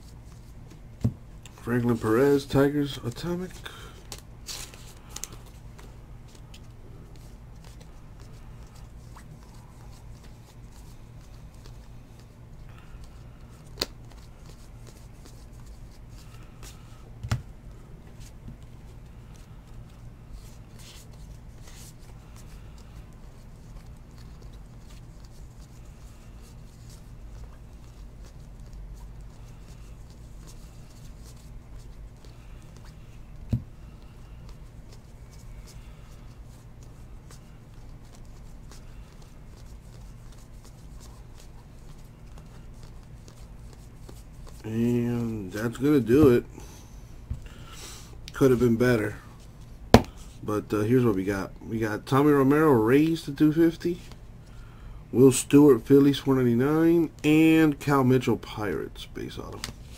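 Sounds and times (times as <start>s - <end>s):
cards rustling by hand: 0.0s - 46.5s
steady low hum: 0.0s - 59.9s.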